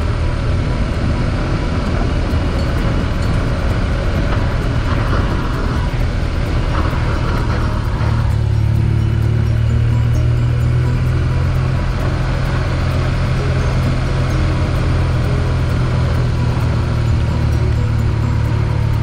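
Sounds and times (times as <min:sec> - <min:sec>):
motorcycle engine cruising: 0:00.0 - 0:19.0
wind noise: 0:00.0 - 0:19.0
tyres on gravel: 0:01.4 - 0:10.8.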